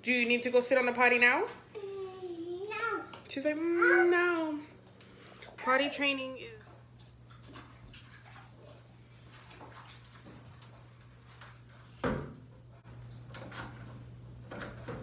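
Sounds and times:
knocks and clatter of handled things: 13.3 - 15.0.

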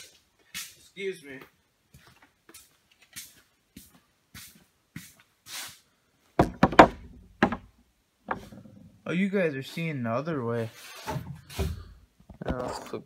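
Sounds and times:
soft scuffing steps: 0.0 - 5.8
loud sharp knocks: 6.4 - 7.7.

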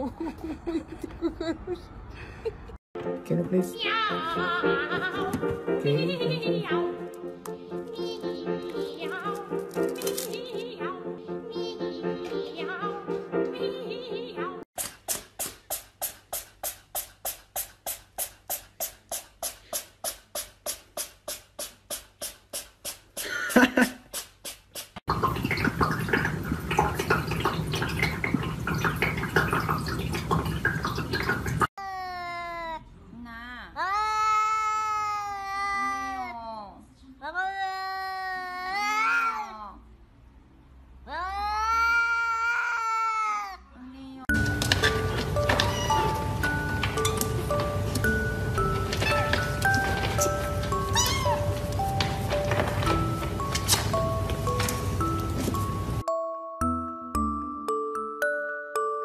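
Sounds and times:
cat meowing: 45.5 - 46.2, 50.8 - 51.6.

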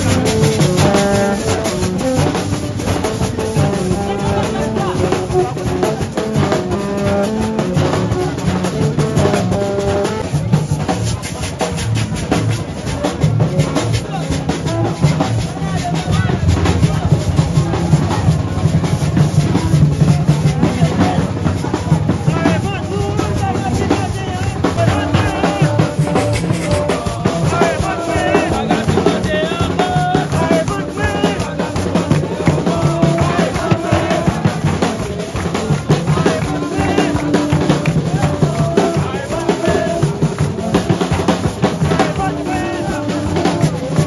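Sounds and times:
drums beating: 0.0 - 44.0
pitched melody: 22.2 - 43.8.

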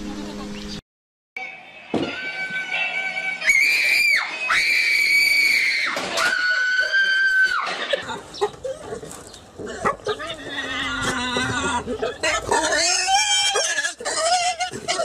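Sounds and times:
pig squealing: 9.6 - 15.0.

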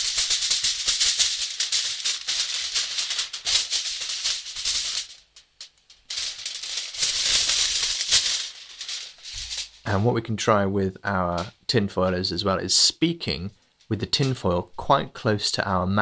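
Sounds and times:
aluminium foil rustling: 0.0 - 10.0.

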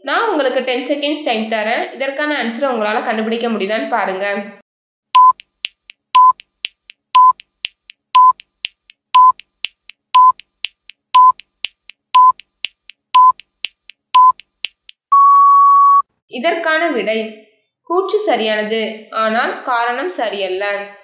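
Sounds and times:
short electronic beeps: 5.2 - 5.5, 6.2 - 6.4, 7.2 - 7.4, 8.2 - 8.4, 9.2 - 9.4, 10.2 - 10.4, 11.2 - 11.4, 12.2 - 12.4, 13.2 - 13.4, 14.2 - 14.4, 15.1 - 16.1
faint ticking: 5.2 - 15.1.

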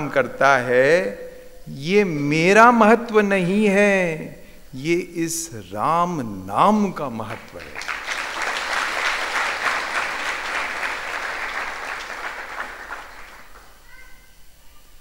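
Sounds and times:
audience applauding: 7.3 - 13.8.

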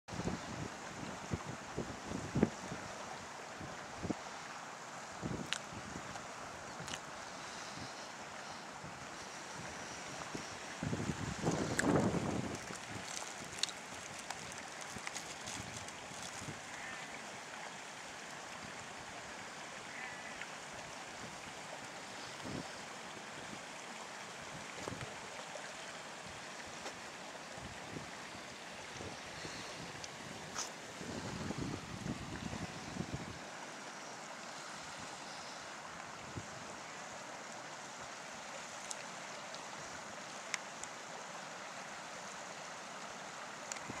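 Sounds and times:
stream water rushing: 0.1 - 44.0
faint clicks: 43.6 - 43.9.

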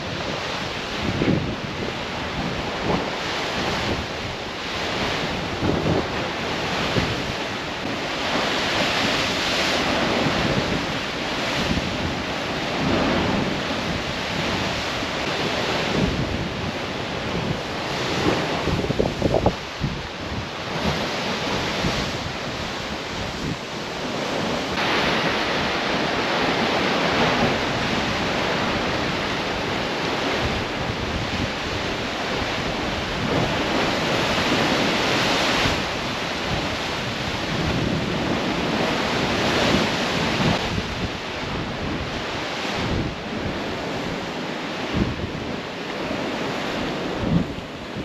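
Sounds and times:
wind buffeting microphone: 0.0 - 48.0.

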